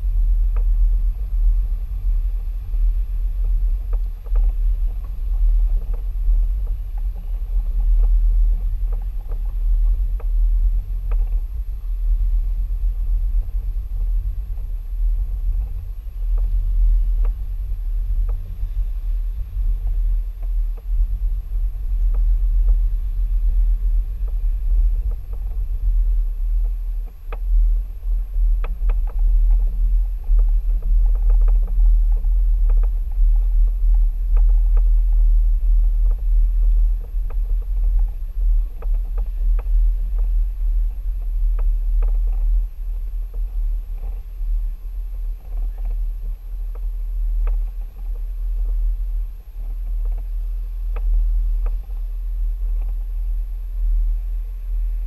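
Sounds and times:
light clicks and knocks: 0:37.0 - 0:40.4.

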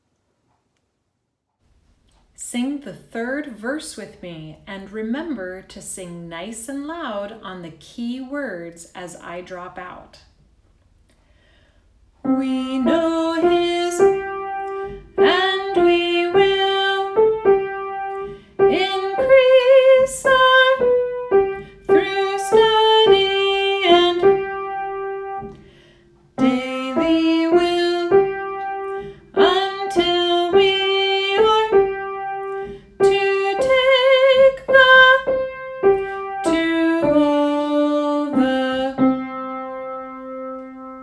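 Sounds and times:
woman singing a hymn: 0:12.2 - 0:25.5, 0:26.4 - 0:39.8
piano accompaniment: 0:12.2 - 0:41.0.

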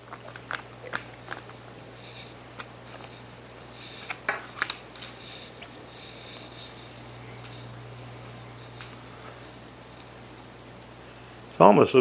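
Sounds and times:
soft wet smacks and clicks: 0:00.0 - 0:01.6
foil pouch crinkling: 0:00.0 - 0:10.3.

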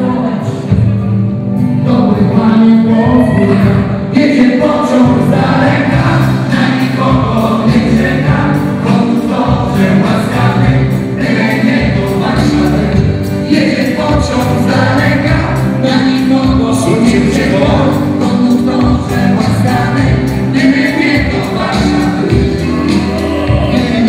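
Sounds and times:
dance song over loudspeakers: 0:01.9 - 0:24.0.

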